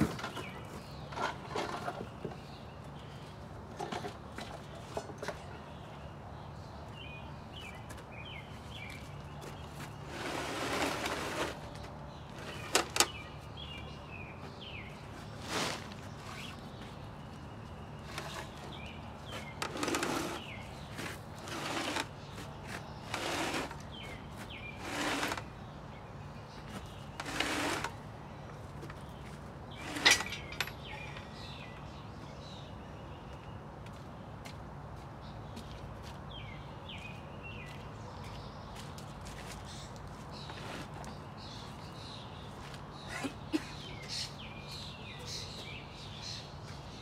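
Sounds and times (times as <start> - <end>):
wooden crate scraping on gravel: 0.0 - 2.2, 9.5 - 13.2, 14.6 - 17.0, 18.0 - 25.5, 26.6 - 28.0.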